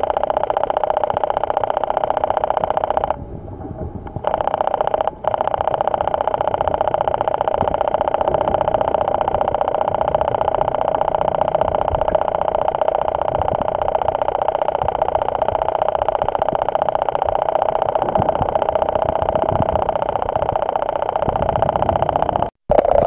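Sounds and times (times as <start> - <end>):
midrange hum: 0.0 - 23.0.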